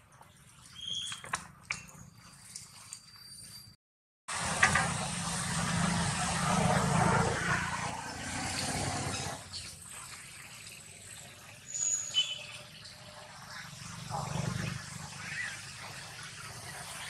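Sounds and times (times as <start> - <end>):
vehicle passing by: 4.3 - 9.6, 13.0 - 17.0.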